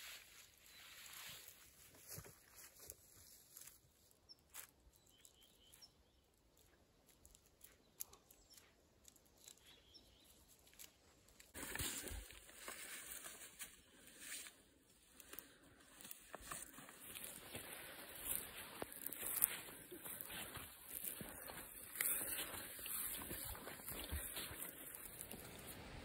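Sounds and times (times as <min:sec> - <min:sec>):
faint forest ambience: 0:00.0 - 0:26.0
small clicks and snaps: 0:05.2 - 0:11.6.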